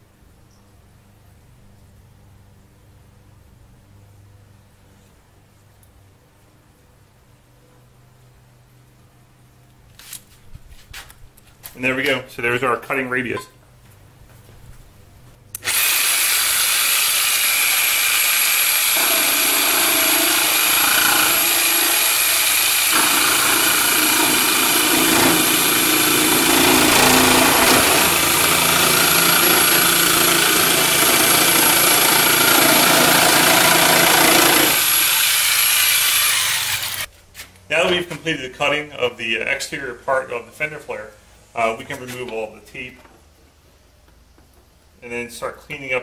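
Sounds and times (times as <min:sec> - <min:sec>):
jigsaw sawing through plastic: 0:15.6 - 0:37.1.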